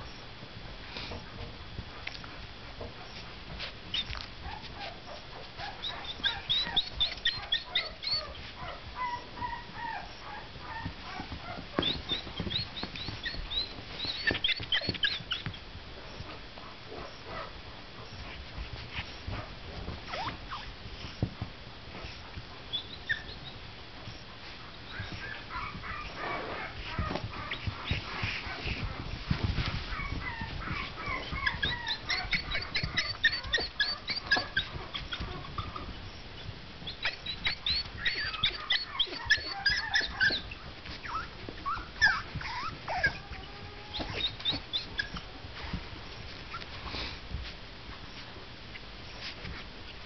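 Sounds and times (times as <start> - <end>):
puppies whimpering and yipping: 3.8 - 16.3, 20.0 - 21.2, 22.7 - 24.2, 24.9 - 47.0.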